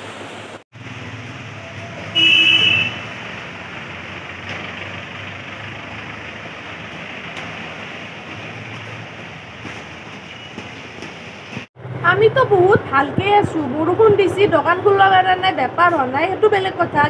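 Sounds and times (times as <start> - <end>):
traffic rumble: 0.0 - 17.0
vehicle horn: 1.8 - 3.2.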